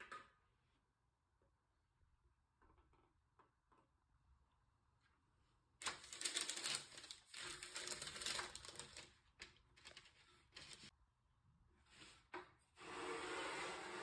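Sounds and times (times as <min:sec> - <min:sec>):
parchment paper crinkling: 0:05.8 - 0:10.9.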